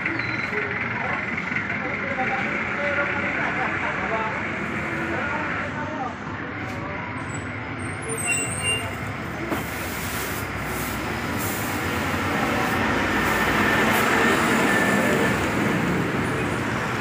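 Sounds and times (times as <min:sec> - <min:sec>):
vehicle passing: 0:10.4 - 0:17.0.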